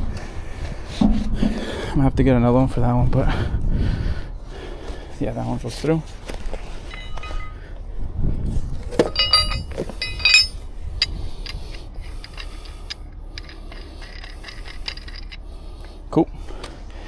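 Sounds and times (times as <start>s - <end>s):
low steady hum: 0.0s - 17.0s
metal hardware clinking: 6.9s - 7.6s, 8.9s - 15.4s.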